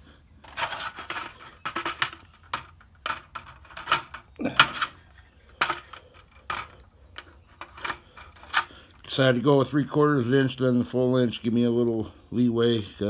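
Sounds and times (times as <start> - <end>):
plastic scraping against wood: 0.4 - 8.9.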